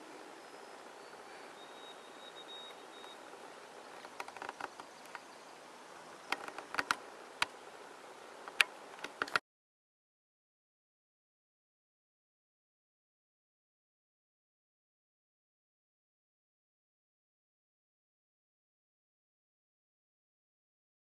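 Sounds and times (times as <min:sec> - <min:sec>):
outdoor background hiss: 0:00.0 - 0:09.4.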